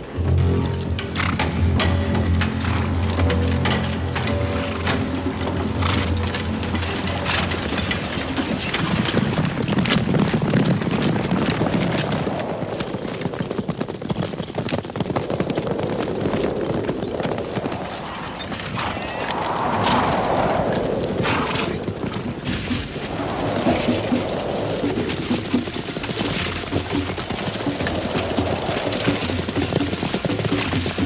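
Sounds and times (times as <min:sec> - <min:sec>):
horses galloping hoofbeats: 0:00.0 - 0:31.0
rushing noise: 0:11.2 - 0:13.3, 0:15.2 - 0:31.0.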